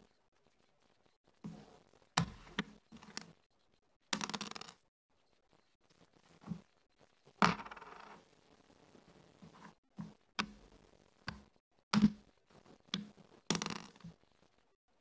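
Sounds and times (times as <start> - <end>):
checkers clacking on wooden board: 4.2 - 4.8, 7.4 - 8.1, 12.9 - 14.2.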